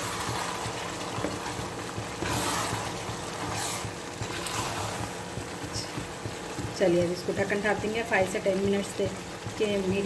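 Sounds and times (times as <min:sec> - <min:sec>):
spoon scraping rice in a pan: 0:00.0 - 0:05.2.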